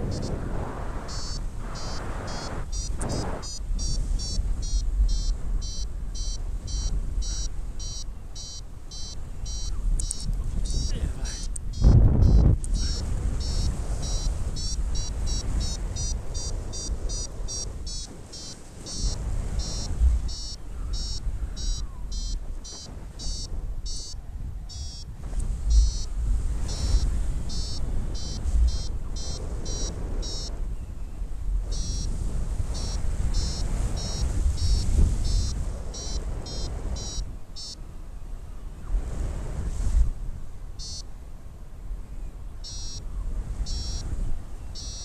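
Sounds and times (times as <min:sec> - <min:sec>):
variometer beeping: 0:00.0 - 0:00.4, 0:01.0 - 0:25.1, 0:25.7 - 0:30.6, 0:31.7 - 0:32.1, 0:32.7 - 0:37.8, 0:40.8 - 0:41.1, 0:42.6 - 0:43.0, 0:43.6 - 0:44.1, 0:44.8 - 0:45.0
wind on microphone: 0:00.0 - 0:45.0.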